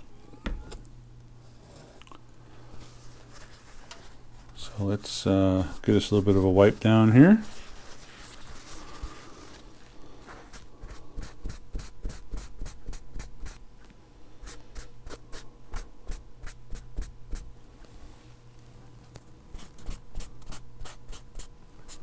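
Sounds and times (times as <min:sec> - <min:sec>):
cloth rubbing on metal: 0:05.6 - 0:10.6.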